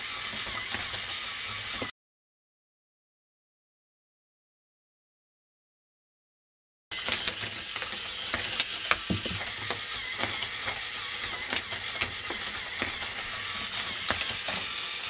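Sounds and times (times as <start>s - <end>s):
plastic rattle: 7.0s - 15.0s.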